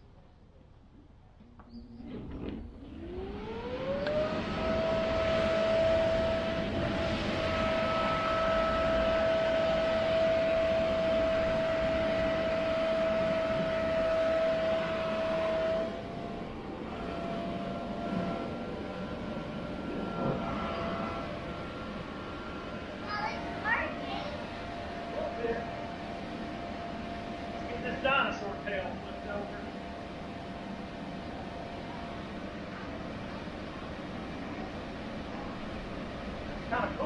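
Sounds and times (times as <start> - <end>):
electric blower motor whine: 2.8 - 23.0.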